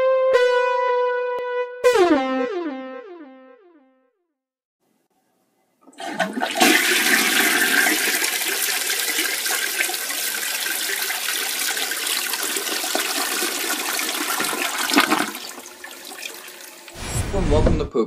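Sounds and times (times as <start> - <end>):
toilet flushing: 5.8 - 17.0.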